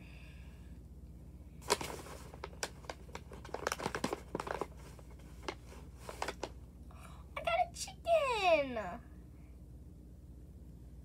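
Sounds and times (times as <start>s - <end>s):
paper bag crinkling: 1.6s - 6.6s.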